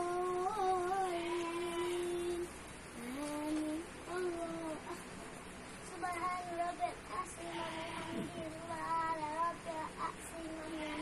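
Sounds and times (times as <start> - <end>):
child chanting prayer: 5.9 - 11.0.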